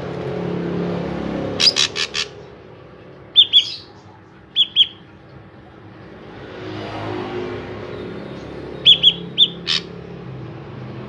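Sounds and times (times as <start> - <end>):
bird calling harsh notes: 1.5 - 2.6, 3.2 - 5.2, 8.2 - 10.2.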